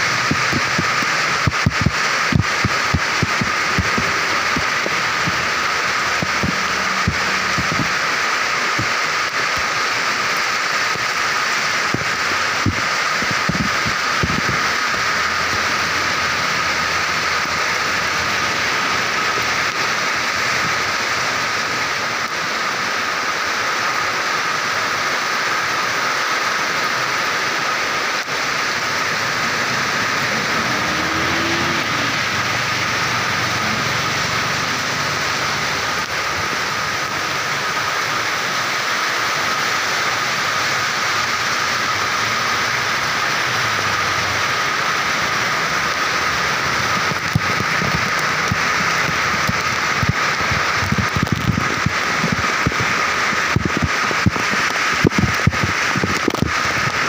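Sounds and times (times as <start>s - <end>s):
heavy rain falling: 0.0s - 57.0s
wind buffeting microphone: 50.0s - 56.5s.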